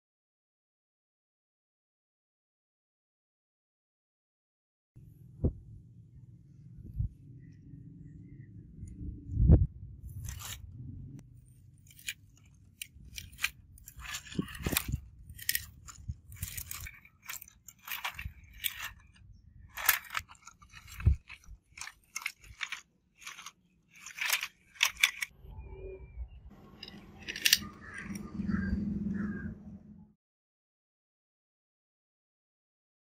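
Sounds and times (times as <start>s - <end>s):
gravel crunching and stones clicking: 10.1s - 10.6s, 11.5s - 25.3s, 26.8s - 28.2s.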